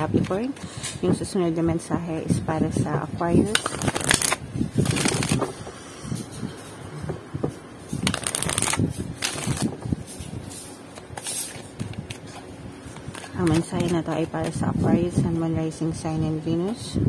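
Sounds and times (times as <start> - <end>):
cards being riffle shuffled: 3.5 - 5.7, 7.9 - 14.6.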